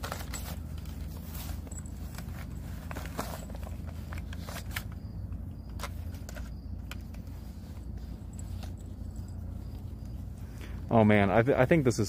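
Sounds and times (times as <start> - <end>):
toy rifle handling clicks and rustles: 0.0 - 5.1
steady low rumble: 0.0 - 12.0.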